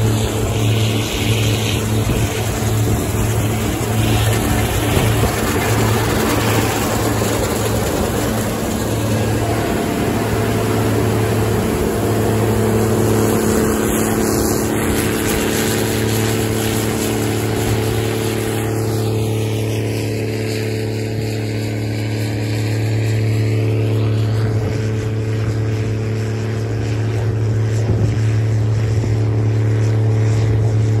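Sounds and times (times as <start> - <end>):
combine harvester engine hum: 0.0 - 31.0
droning machine tones: 0.0 - 31.0.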